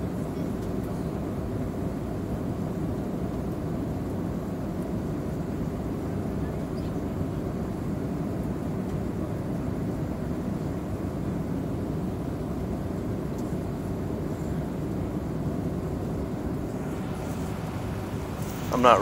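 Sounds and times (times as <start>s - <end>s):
jet engines low rumble: 0.0s - 19.0s
air rushing past fuselage: 16.2s - 19.0s.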